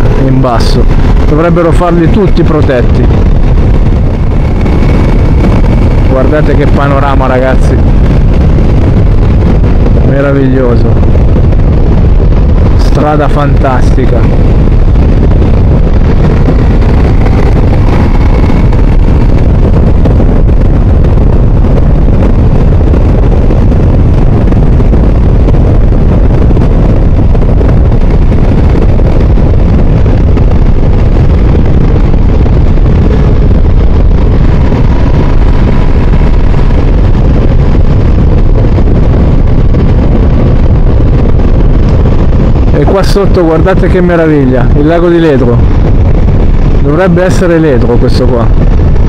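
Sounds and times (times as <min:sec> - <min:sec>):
wind rush on microphone: 0:00.0 - 0:49.0
motorcycle engine running: 0:02.2 - 0:10.1, 0:13.4 - 0:42.7.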